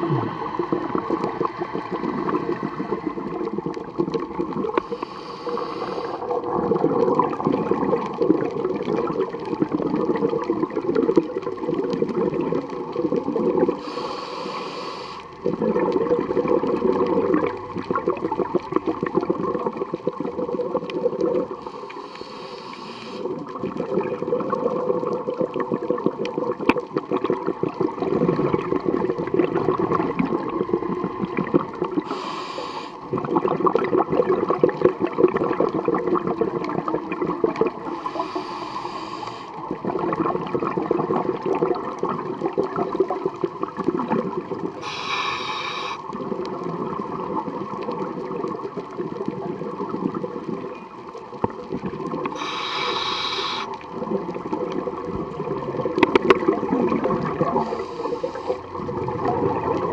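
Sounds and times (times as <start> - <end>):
exhaled bubbles gurgling underwater: 0.0 - 59.9
regulator hiss: 4.8 - 6.4, 13.8 - 15.3, 21.6 - 23.3, 32.0 - 33.0, 37.9 - 39.7, 44.8 - 46.1, 52.3 - 53.8, 57.5 - 58.7.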